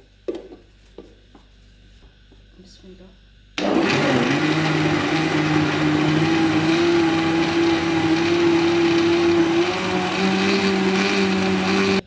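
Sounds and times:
blender motor whirring: 3.6 - 12.0.

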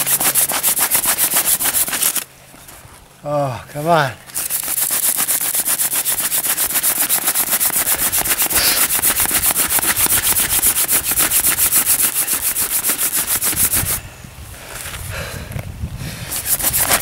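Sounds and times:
wooden spindle grinding on board: 0.0 - 2.2, 4.4 - 14.0, 16.3 - 17.0.

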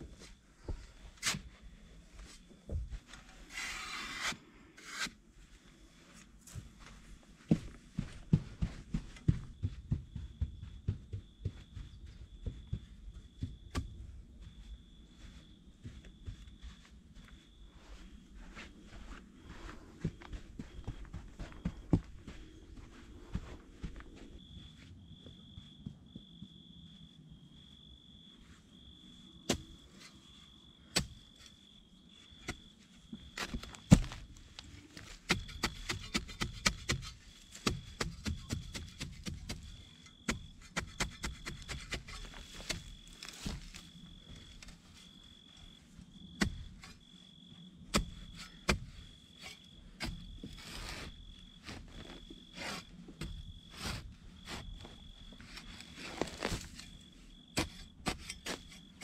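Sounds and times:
insect chirping: 8.0 - 18.7, 19.4 - 59.0
spade chopping into soil: 35.3 - 39.6, 40.3 - 43.8, 57.6 - 58.9.

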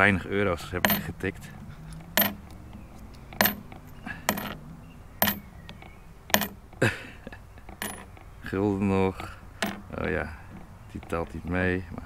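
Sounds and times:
metal coins clinking: 0.8 - 1.2, 1.9 - 4.6, 5.2 - 6.8, 7.7 - 8.2, 9.6 - 9.9.

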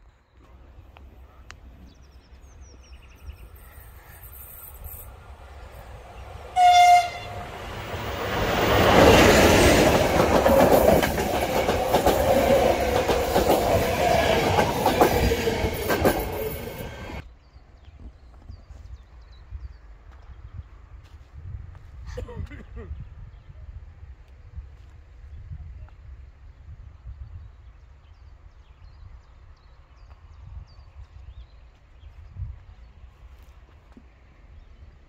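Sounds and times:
train horn blast: 6.5 - 7.8
train wheels clattering over rails: 7.5 - 17.2.

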